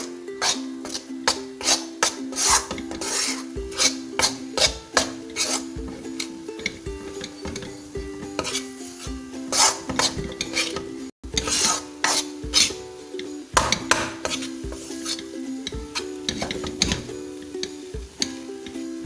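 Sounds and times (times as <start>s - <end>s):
metal spoon scraping a pan: 0.0s - 18.8s.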